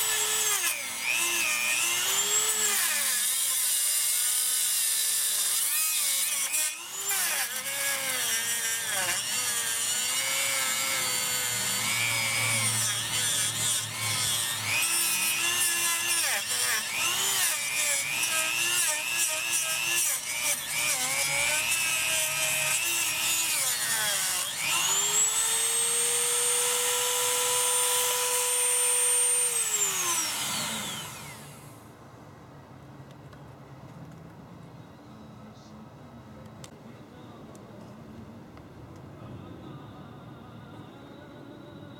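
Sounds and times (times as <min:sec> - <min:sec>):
rotary tool cutting plastic: 0:00.0 - 0:31.7.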